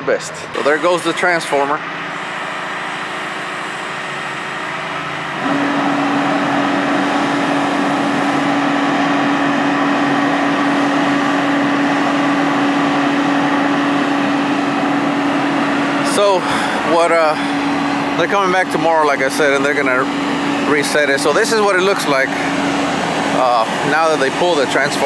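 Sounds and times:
diesel engine running: 0.0 - 25.0
steady hum: 0.0 - 25.0.

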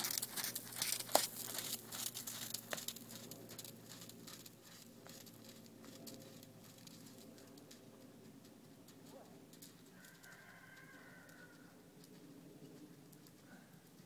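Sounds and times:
horse hooves trotting on sand: 0.0 - 14.0.

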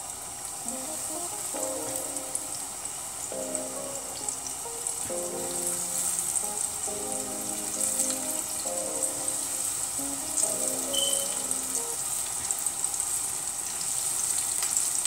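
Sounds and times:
chicken frying in oil: 0.0 - 15.0
soft background music: 0.6 - 12.3.

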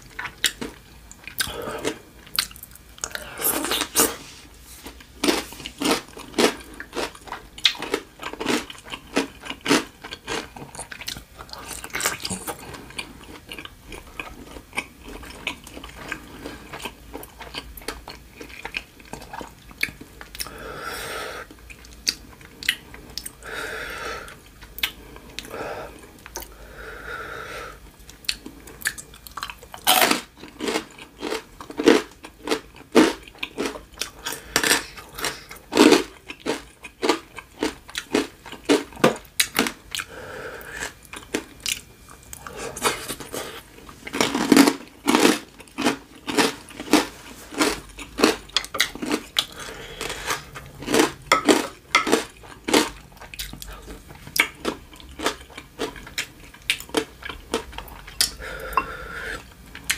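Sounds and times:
chewing and crunching: 0.0 - 20.6, 21.5 - 23.6, 27.9 - 59.9
soft mouth sounds: 1.3 - 4.4.

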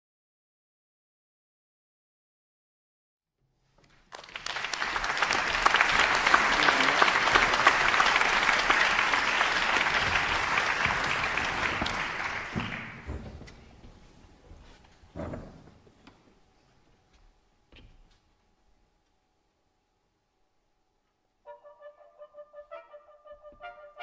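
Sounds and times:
audience applause: 4.0 - 13.3.

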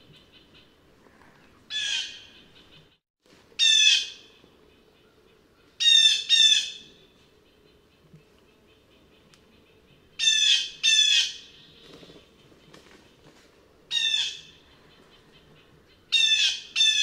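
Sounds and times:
blue jay calling: 1.7 - 2.8, 5.8 - 7.0, 8.7 - 11.9, 13.9 - 17.0.

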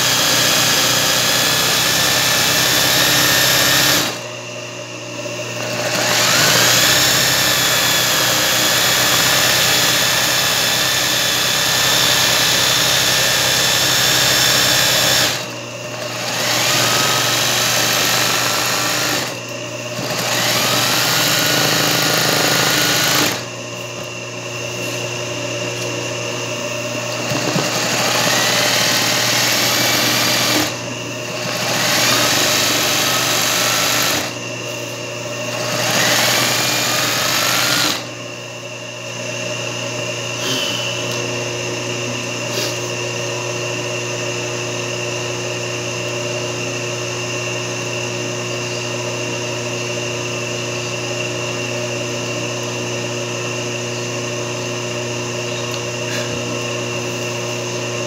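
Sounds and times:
sewing machine stitching: 0.0 - 4.2, 5.6 - 23.4, 27.1 - 34.4, 35.5 - 38.1
low machine hum: 2.7 - 44.0.

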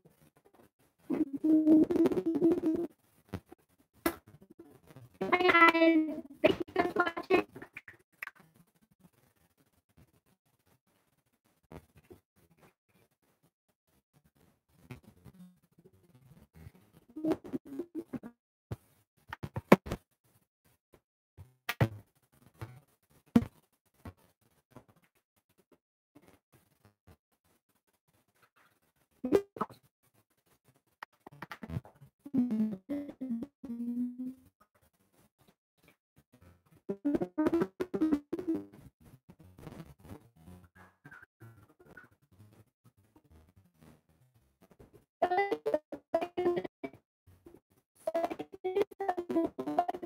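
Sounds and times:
girl singing wordless notes: 5.2 - 7.5, 32.3 - 34.4.

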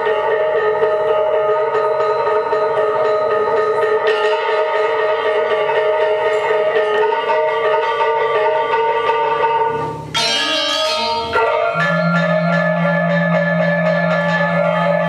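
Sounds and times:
bronze metallophones ringing: 0.0 - 15.0
low humming note: 9.8 - 15.0.

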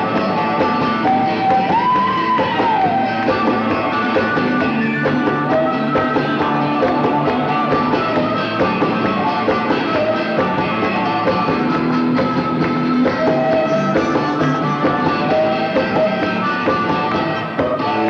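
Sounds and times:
harmonica held notes: 0.0 - 18.0
live rock band playing: 0.0 - 18.0.

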